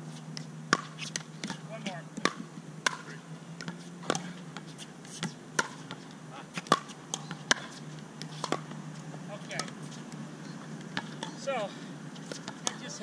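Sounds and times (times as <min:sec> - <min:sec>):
ball bouncing on hard court: 0:00.4 - 0:11.5, 0:12.2 - 0:13.0
paddles striking ball: 0:02.2 - 0:04.3, 0:06.6 - 0:08.8, 0:12.3 - 0:13.0.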